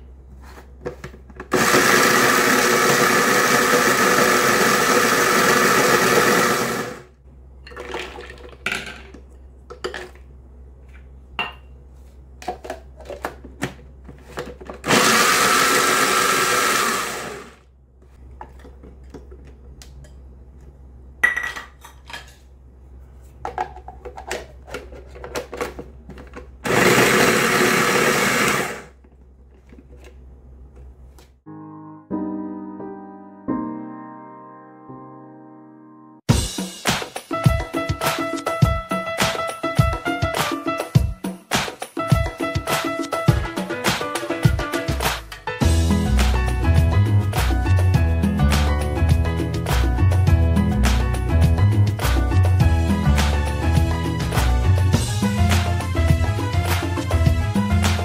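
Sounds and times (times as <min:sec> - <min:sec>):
food processor running: 0:01.5 - 0:07.1, 0:14.8 - 0:17.6, 0:26.6 - 0:28.9.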